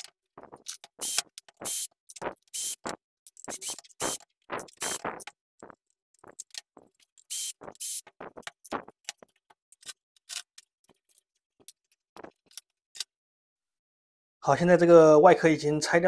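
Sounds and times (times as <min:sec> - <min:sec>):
cordless drill whirring: 0:03.5 - 0:04.2, 0:04.8 - 0:05.0.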